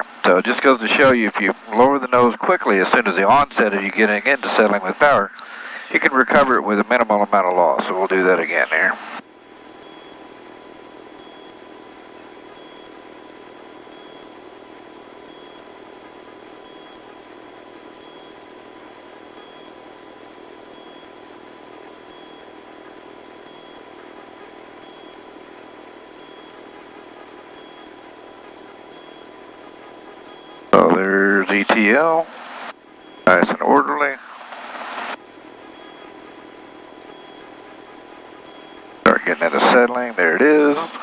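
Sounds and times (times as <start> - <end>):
faint high whine: 0.0 - 41.0
helicopter cabin noise: 22.1 - 41.0.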